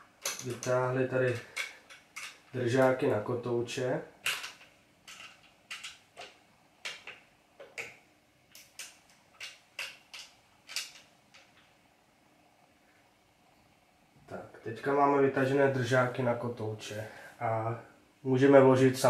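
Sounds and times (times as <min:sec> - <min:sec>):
sharp metal clicks and knocks: 0:00.1 - 0:03.0, 0:04.2 - 0:11.7.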